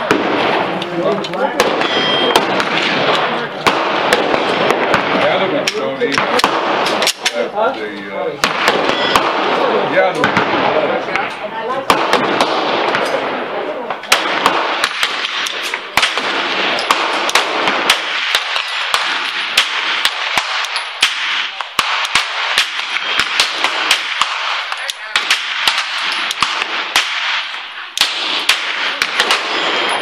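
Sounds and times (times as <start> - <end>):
faint distant gunfire: 0.0 - 7.4, 8.4 - 11.0, 11.8 - 30.0
pistol shots: 0.0 - 7.5, 8.4 - 11.0, 11.8 - 30.0.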